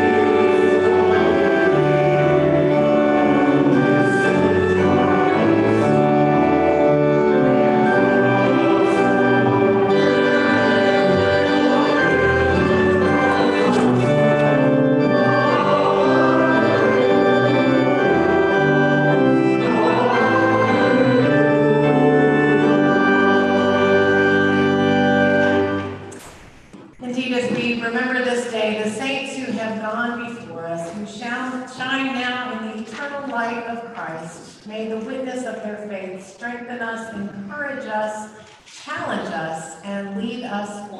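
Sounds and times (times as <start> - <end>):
choir singing a hymn: 0.0 - 26.0
church organ chords: 0.0 - 26.9.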